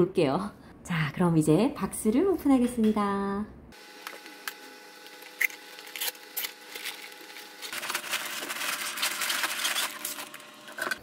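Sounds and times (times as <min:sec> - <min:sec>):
plastic bags crinkling: 0:05.0 - 0:11.0.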